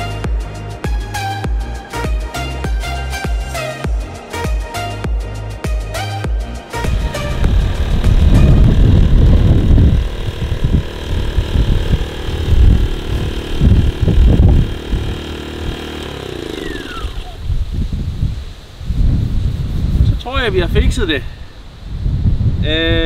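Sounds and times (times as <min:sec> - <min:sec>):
portable generator running: 0:06.4 - 0:17.7
wind buffeting microphone: 0:06.8 - 0:23.0.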